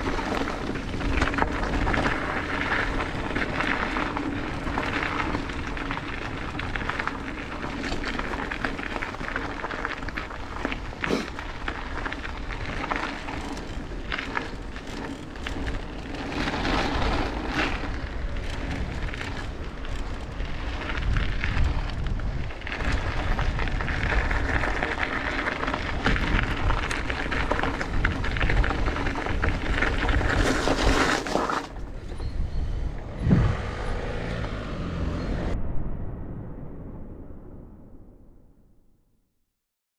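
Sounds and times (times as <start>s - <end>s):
bike knocking and rattling: 0.0s - 33.6s
tyres on dirt and gravel: 0.0s - 35.6s
wind rushing over microphone: 10.1s - 31.1s, 31.7s - 38.5s.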